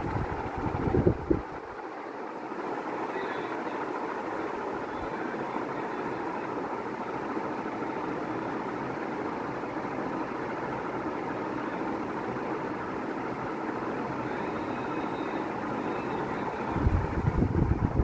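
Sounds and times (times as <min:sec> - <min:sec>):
ceiling fans rushing air: 0:00.0 - 0:18.0.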